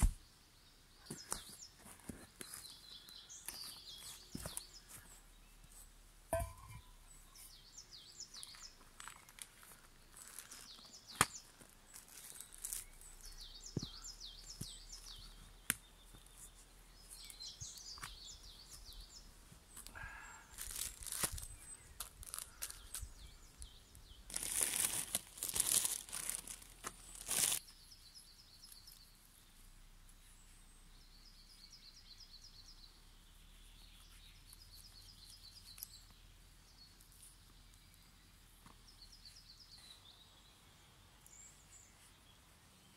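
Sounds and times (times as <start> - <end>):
songbirds trilling: 0.2 - 42.9
plastic and paper crinkling: 8.8 - 13.1, 20.6 - 23.1, 24.3 - 27.6.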